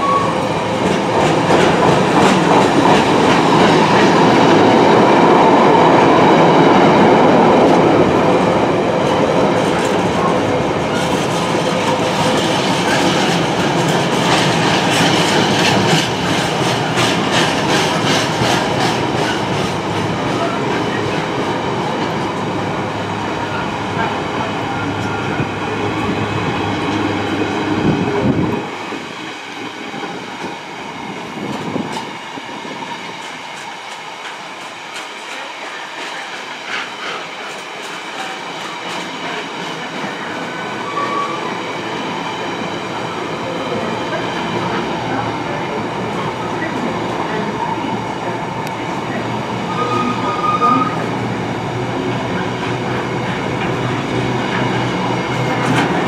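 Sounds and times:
deep train rumble: 0.0s - 56.0s
train wheels clicking over rail joints: 10.9s - 21.2s, 52.6s - 56.0s.

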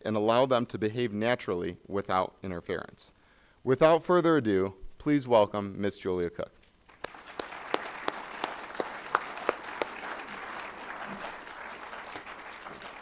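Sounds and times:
audience applauding: 6.9s - 13.0s.

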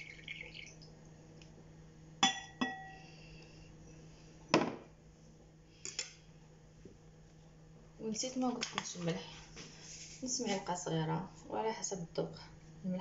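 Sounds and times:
glass clinking on hard surface: 2.2s - 3.0s.

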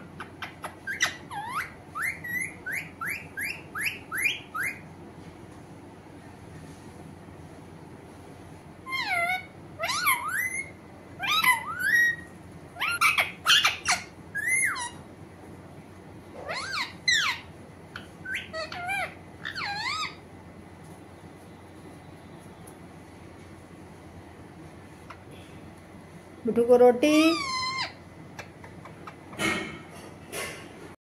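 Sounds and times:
parakeet calling: 0.0s - 4.9s, 8.8s - 15.1s, 16.4s - 20.4s, 27.0s - 29.5s.

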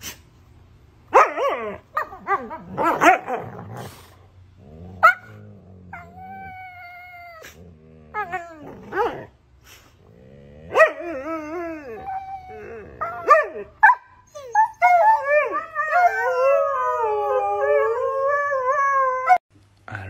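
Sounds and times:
dogs whining and howling: 1.2s - 4.0s, 4.7s - 9.3s, 10.2s - 19.4s
dogs growling: 1.5s - 13.3s.

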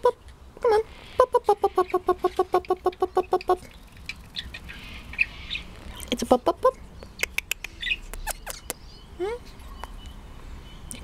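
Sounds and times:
sharp clicks: 7.0s - 8.8s.

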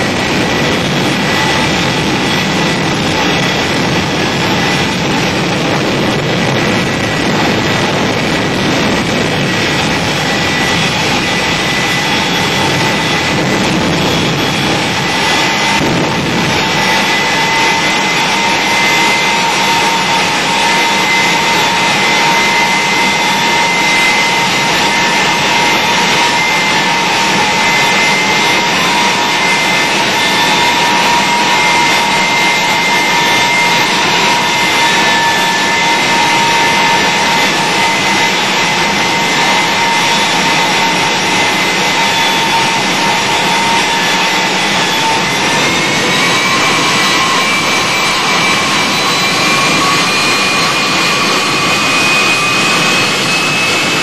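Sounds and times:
jet engine high whine: 0.0s - 54.0s
jet engine roaring: 0.0s - 54.0s.

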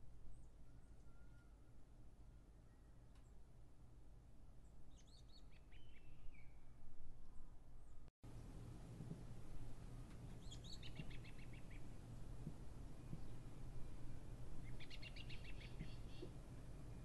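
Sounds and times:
steady low hum: 6.4s - 17.0s
small bird chirping: 10.3s - 11.9s, 14.6s - 16.4s.

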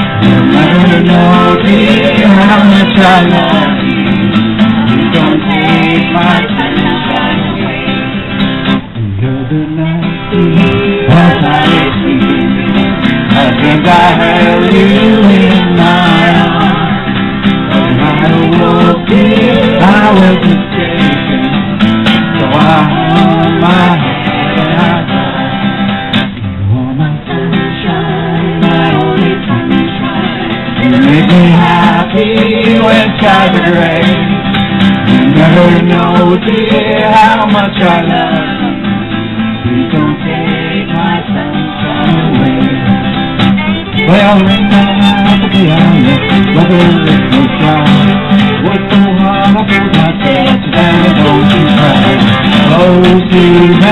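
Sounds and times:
man and woman singing: 0.0s - 25.8s, 26.6s - 53.9s
acoustic guitar strumming: 0.0s - 53.9s
fiddle: 10.9s - 26.2s, 27.6s - 53.9s.

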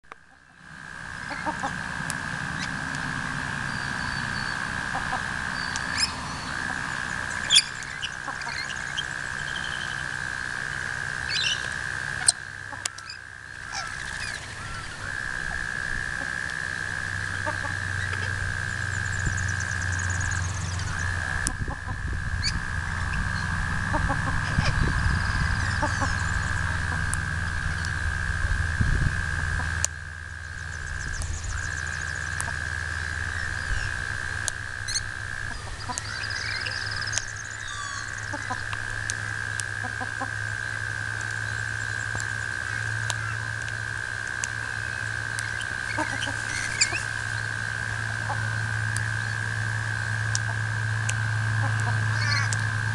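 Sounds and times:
high-pitched drone: 0.4s - 52.9s
birds chirping: 2.5s - 28.0s, 30.5s - 34.2s, 34.8s - 39.2s, 44.7s - 49.6s, 51.6s - 52.8s.

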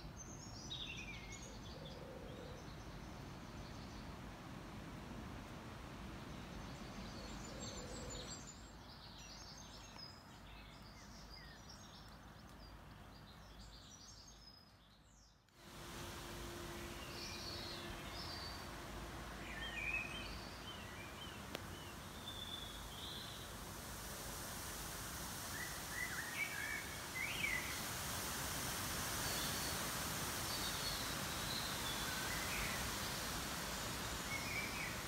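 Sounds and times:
outdoor background noise: 0.0s - 35.0s
faint steady hum: 15.5s - 35.0s
small birds singing and chirping: 16.8s - 23.5s.

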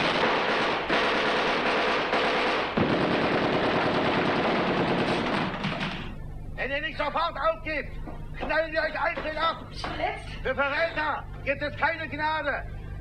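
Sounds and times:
machine-gun fire: 0.0s - 6.2s.

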